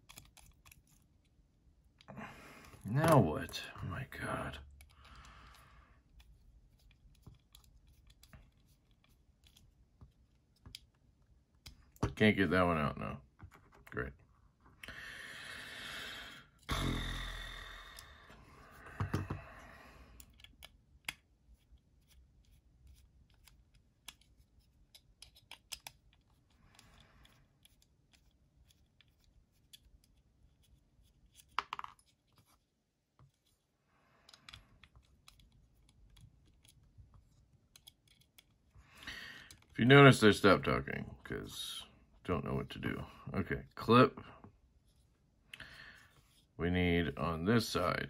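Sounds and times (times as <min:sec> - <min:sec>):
small metal clicks and taps: 0:24.9 - 0:30.2, 0:37.6 - 0:38.6.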